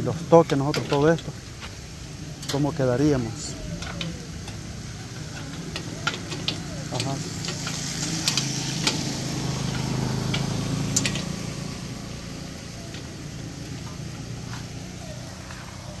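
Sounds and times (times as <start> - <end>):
motorcycle engine passing by: 3.4 - 16.0.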